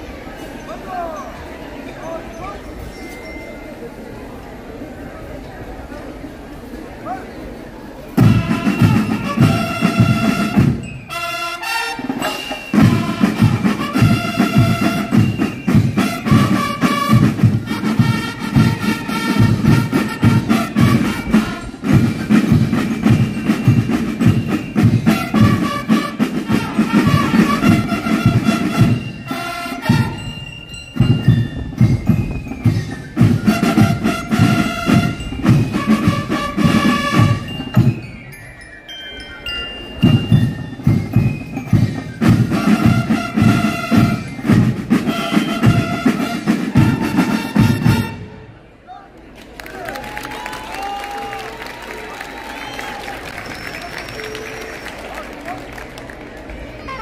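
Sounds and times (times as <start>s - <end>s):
marching band playing: 8.1s - 38.4s, 39.7s - 48.7s
rapid snare drum beat: 8.2s - 10.9s, 12.2s - 29.2s, 31.0s - 38.0s, 40.1s - 48.2s.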